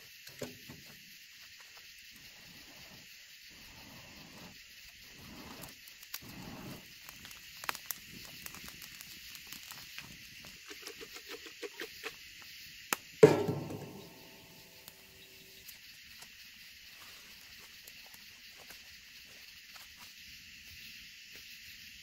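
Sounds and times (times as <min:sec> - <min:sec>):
night insects chirping: 0:00.0 - 0:22.0
wood fire crackling and popping: 0:04.1 - 0:16.4.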